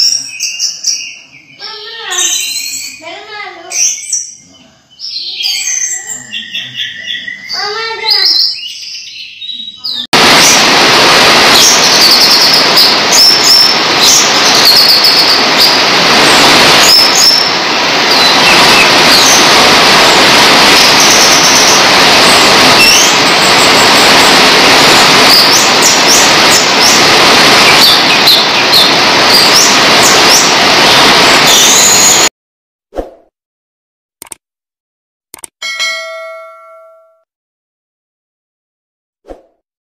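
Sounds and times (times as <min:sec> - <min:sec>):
bird chirping: 0:00.0 - 0:10.1
steady rushing noise: 0:10.2 - 0:32.3.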